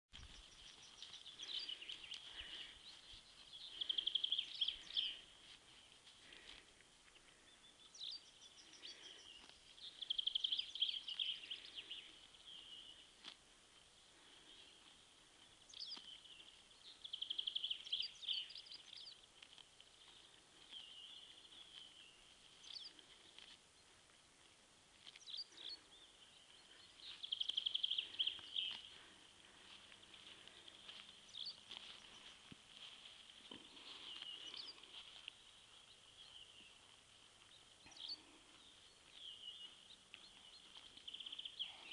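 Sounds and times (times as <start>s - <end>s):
songbird singing: 0.1s - 41.9s.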